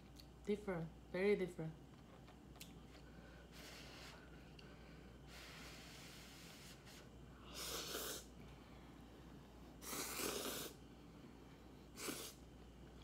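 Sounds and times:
noisy noodle slurps: 0:07.6 - 0:08.3, 0:09.8 - 0:10.8.

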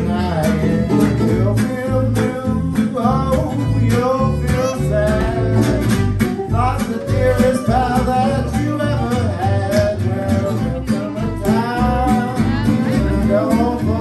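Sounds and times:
low bass notes: 0:00.0 - 0:14.0
strummed acoustic guitar: 0:00.0 - 0:14.0.

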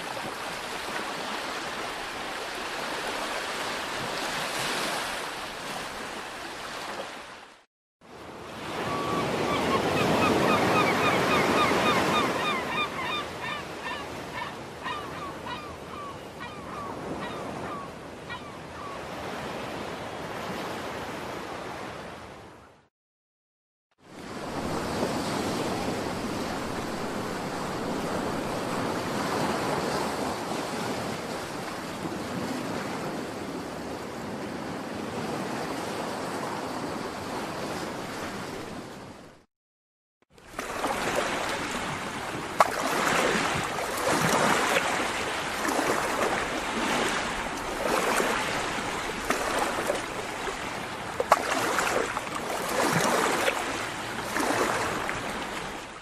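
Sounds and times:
ocean waves breaking: 0:00.0 - 0:22.5, 0:24.0 - 0:39.4, 0:40.4 - 0:56.0.

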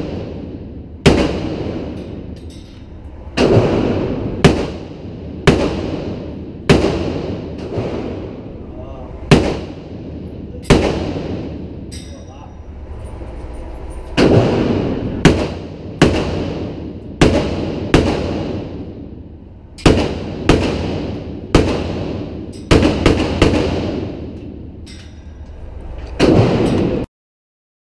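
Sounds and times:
rifle shots echoing: 0:00.0 - 0:02.4, 0:03.2 - 0:08.6, 0:09.2 - 0:12.0, 0:14.2 - 0:24.8, 0:26.2 - 0:27.1.

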